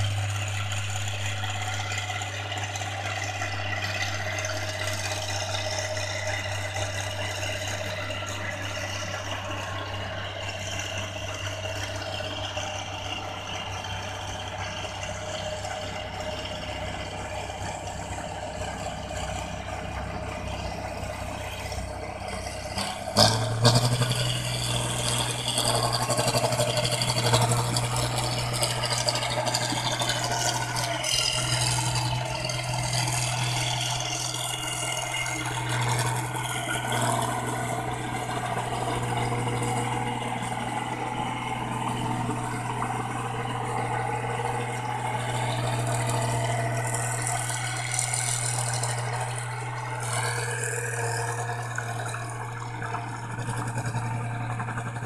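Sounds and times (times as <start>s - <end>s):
diesel engine running: 0.0s - 55.0s
machinery rattling: 0.0s - 55.0s.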